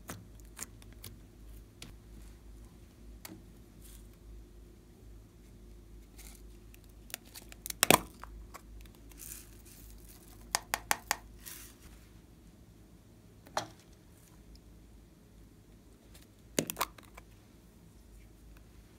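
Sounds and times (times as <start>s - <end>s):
sequins rustling onto slime: 8.9s - 10.5s, 11.3s - 12.0s.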